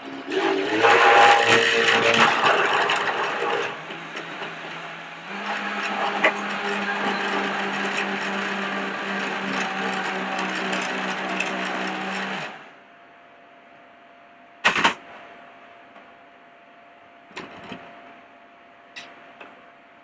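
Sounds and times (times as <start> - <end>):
blender motor running: 0.0 - 12.6.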